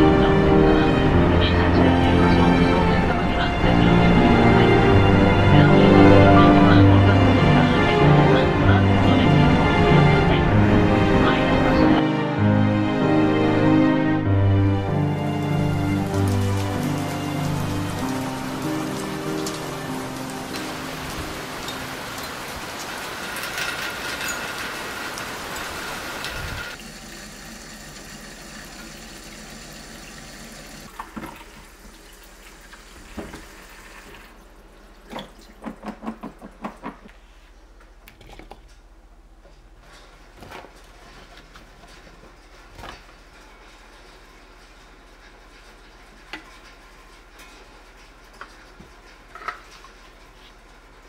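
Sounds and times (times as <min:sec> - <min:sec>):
heavy rain: 0:14.4 - 0:28.1.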